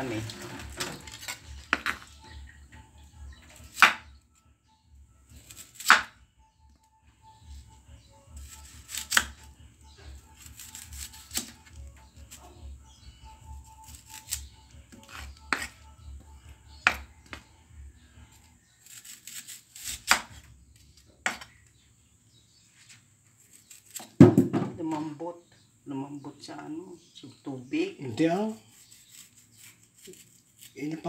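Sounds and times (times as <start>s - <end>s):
knife slicing onion: 3.6s - 4.1s, 5.4s - 6.1s, 8.4s - 12.6s, 13.8s - 15.9s, 18.4s - 20.4s, 21.2s - 21.6s, 23.4s - 24.2s, 28.7s - 31.0s.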